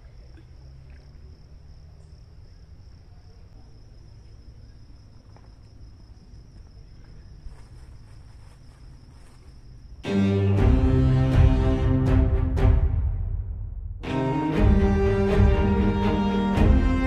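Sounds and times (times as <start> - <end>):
insects chirring: 0.0 - 11.3
low rumble: 10.6 - 17.0.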